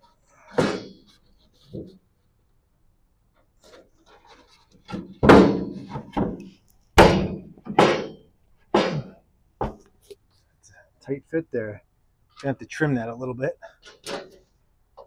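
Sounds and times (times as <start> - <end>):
heavy thunks of wooden board: 0.5 - 1.1, 4.8 - 9.9.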